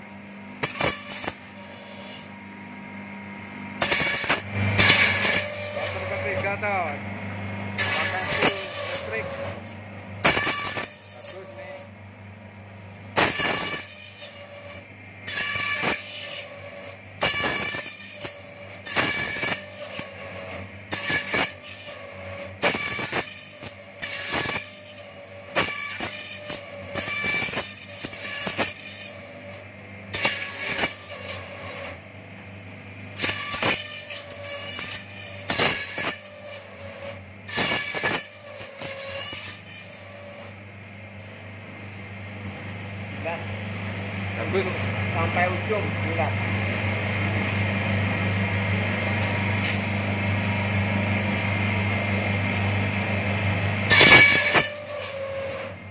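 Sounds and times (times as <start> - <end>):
machine motor hum: 0.0 - 55.9
bamboo strip planing bursts: 7.8 - 11.9, 13.2 - 29.6.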